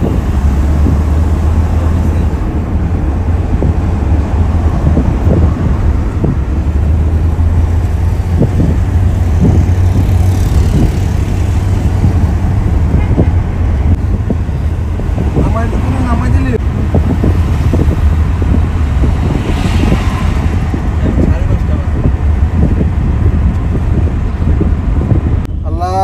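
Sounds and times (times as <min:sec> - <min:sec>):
car cabin road rumble: 0:00.0 - 0:26.0.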